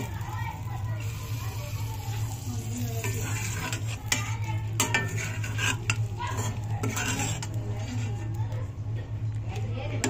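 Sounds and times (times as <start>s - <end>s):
steel spatula scraping iron pan: 2.8s - 8.2s.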